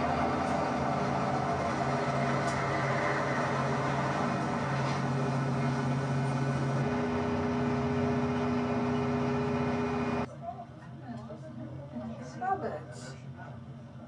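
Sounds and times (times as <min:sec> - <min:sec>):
train running rumble: 0:00.0 - 0:10.3.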